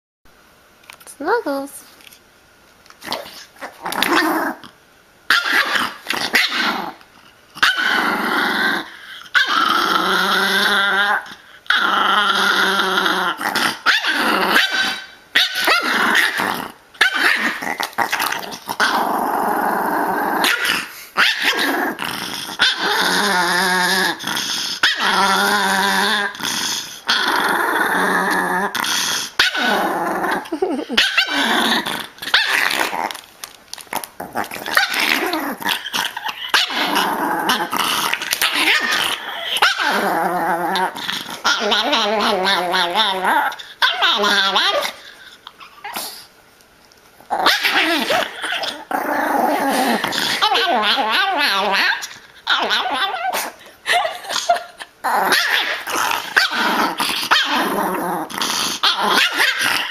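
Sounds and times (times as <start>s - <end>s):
small dog growling: 3.0s - 33.2s, 33.9s - 46.3s, 47.2s - 59.9s
small dog barking and yipping: 5.3s - 6.7s, 13.8s - 16.4s, 17.0s - 17.6s, 47.4s - 48.4s, 59.1s - 59.9s.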